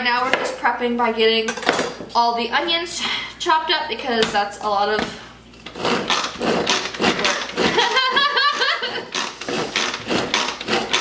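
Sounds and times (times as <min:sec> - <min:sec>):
pull-cord food chopper whirring: 0:05.6 - 0:11.0.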